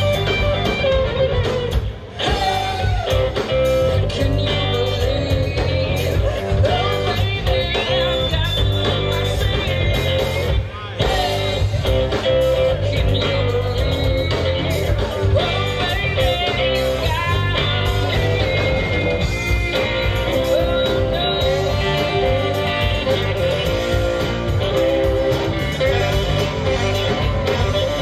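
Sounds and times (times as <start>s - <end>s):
live rock band playing: 0.0s - 28.0s
woman singing: 3.9s - 11.7s, 12.5s - 24.0s.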